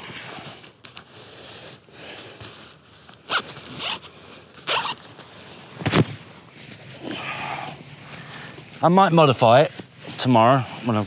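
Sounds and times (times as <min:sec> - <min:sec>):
zip being pulled: 0:03.2 - 0:05.1.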